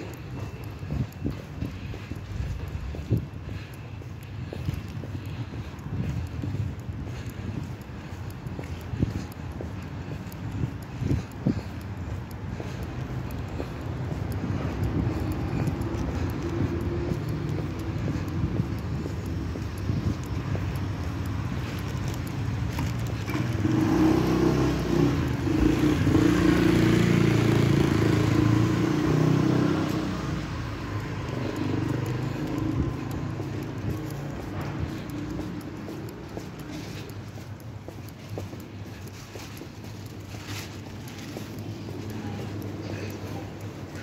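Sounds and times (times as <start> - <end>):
street noise: 0.0 - 44.0
vehicle engine passing: 23.3 - 37.1.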